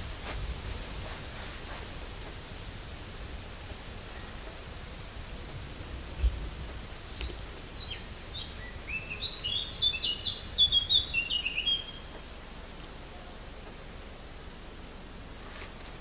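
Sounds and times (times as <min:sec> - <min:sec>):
songbird chirping: 0:05.4 - 0:14.0.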